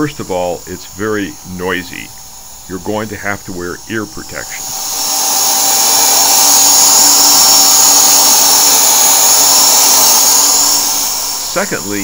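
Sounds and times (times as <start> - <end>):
paint sprayer motor whine: 0.0 - 12.0
rush of air: 4.4 - 12.0.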